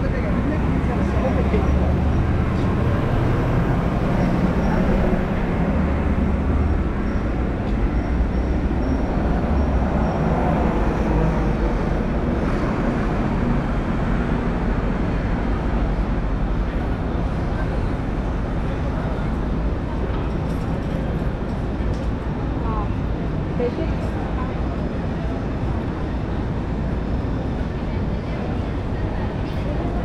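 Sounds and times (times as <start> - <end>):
city street traffic rumble: 0.0 - 30.0.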